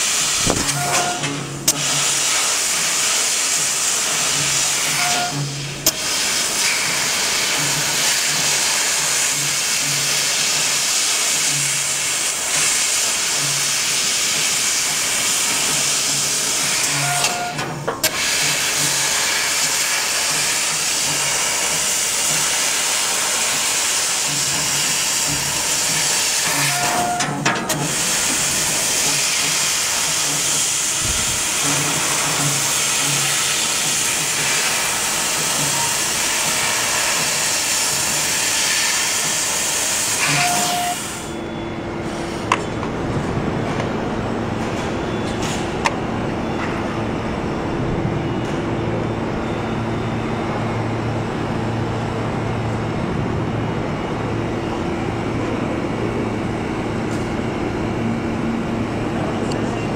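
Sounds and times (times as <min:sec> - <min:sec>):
laser cutter gas jet hissing: 0:00.0 - 0:41.3
short tone: 0:40.3 - 0:43.4, 0:44.4 - 0:47.2, 0:48.0 - 0:50.9.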